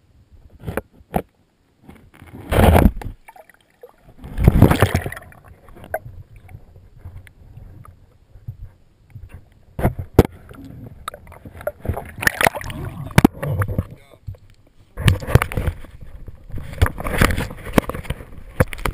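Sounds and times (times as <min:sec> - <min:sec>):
low water noise: 0:00.0 - 0:18.9
underwater rush of water: 0:02.5 - 0:08.0, 0:10.2 - 0:14.0
small clicks and knocks: 0:13.2 - 0:18.9.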